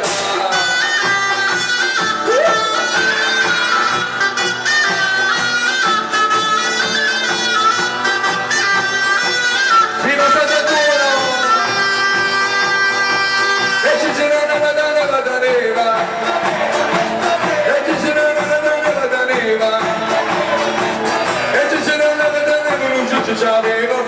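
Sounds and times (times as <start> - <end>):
person singing: 10.2 - 24.0
wooden barrels beaten rhythmically: 13.0 - 24.0.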